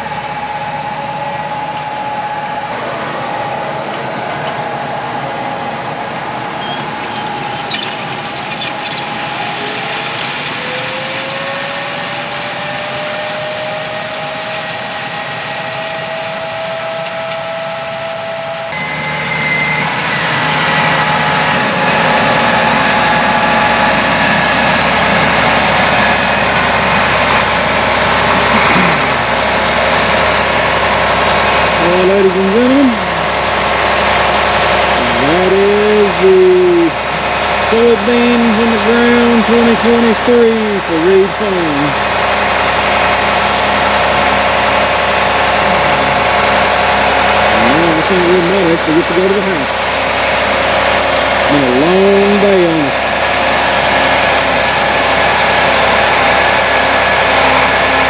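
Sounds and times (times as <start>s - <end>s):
tractor engine running: 0.0s - 12.6s, 16.3s - 58.0s
faint machine whine: 0.0s - 58.0s.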